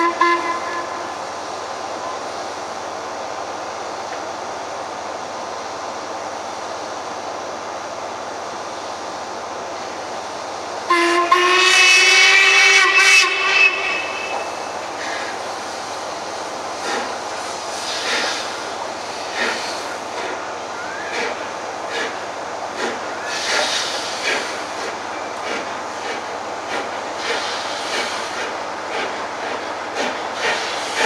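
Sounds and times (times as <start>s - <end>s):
steam locomotive whistle: 0.0s - 1.2s, 10.9s - 14.7s
passing train noise: 0.0s - 31.0s.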